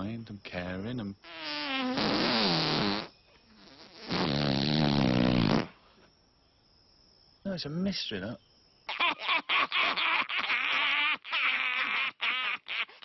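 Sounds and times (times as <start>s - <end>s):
comedy fart sound: 1.3s - 5.8s.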